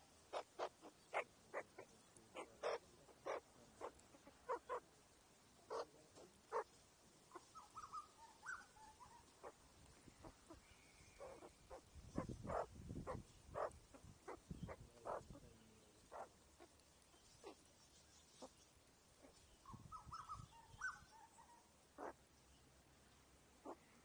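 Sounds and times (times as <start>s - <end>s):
birds pecking and clucking: 0.0s - 24.0s
faint bird warbling: 7.3s - 15.4s.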